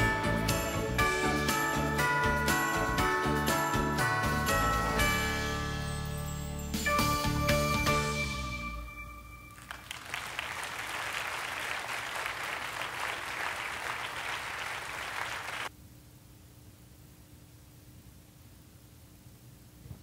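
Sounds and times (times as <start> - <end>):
song accompaniment held notes: 0.0 - 9.8
congregation applauding: 9.5 - 15.7.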